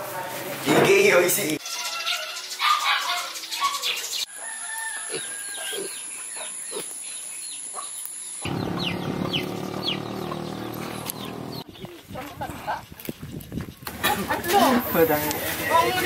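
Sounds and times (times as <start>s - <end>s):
chickens clucking and peeping: 8.5s - 12.5s.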